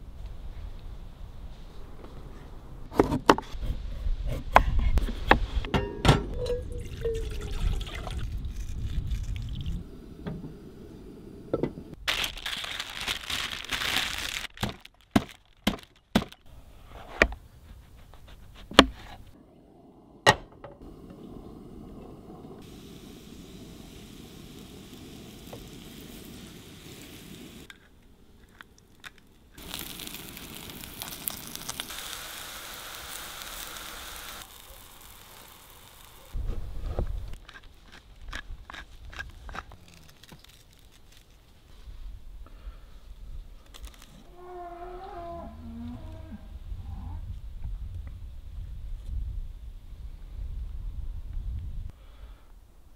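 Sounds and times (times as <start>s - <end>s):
mushrooms sizzling in oil: 22.6s - 27.7s, 29.6s - 36.4s.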